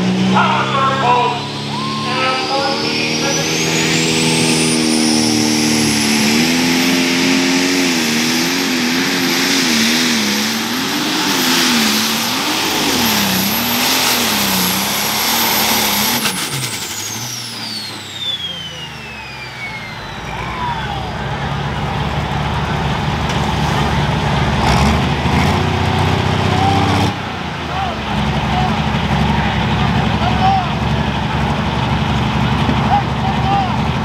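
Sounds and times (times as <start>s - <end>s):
diesel engine at full throttle: 0.0s - 34.0s
high turbocharger whistle: 0.7s - 21.3s.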